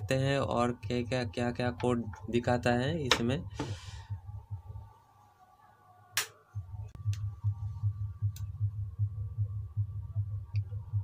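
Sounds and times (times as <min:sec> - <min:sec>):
computer fan humming: 0:06.2 - 0:11.0.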